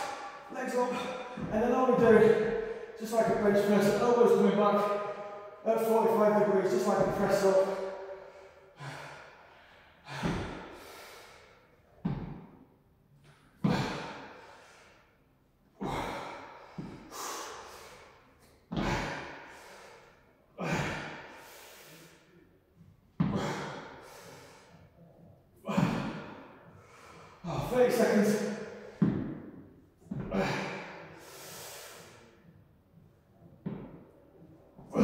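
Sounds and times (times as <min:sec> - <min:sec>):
man exhaling forcefully: 0:07.8 - 0:11.6, 0:13.6 - 0:15.0, 0:15.8 - 0:22.2.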